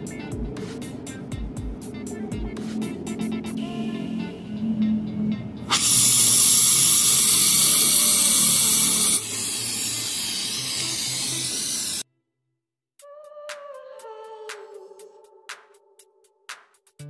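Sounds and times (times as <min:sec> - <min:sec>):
torch flame hissing: 0:05.7 - 0:12.0.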